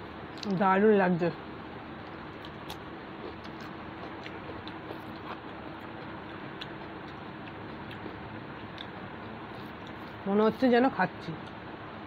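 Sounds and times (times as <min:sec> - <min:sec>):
chewing: 0:02.0 - 0:10.2.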